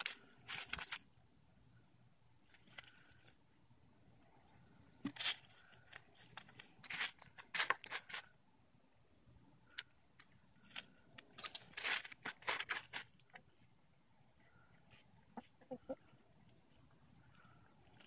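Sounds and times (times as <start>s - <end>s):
hen scratching in dry leaves: 0.0s - 1.2s, 5.1s - 8.4s, 11.4s - 13.2s.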